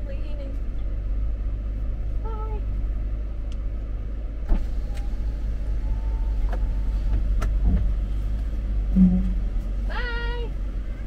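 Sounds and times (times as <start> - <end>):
van engine and road rumble: 0.0 - 11.0.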